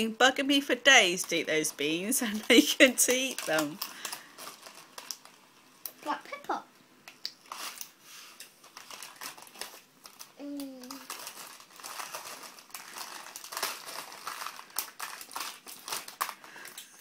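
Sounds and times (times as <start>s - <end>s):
packaging crinkling and rustling: 1.1s - 5.5s, 7.4s - 17.0s
child's voice: 6.0s - 6.7s, 10.4s - 11.1s.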